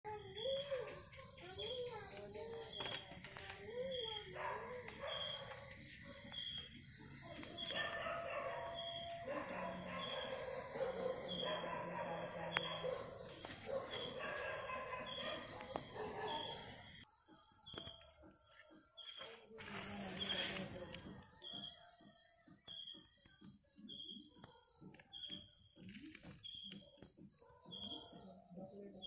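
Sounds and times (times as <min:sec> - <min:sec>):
insects droning and chirping: 0:00.0 - 0:29.0
animal calls: 0:00.1 - 0:17.0.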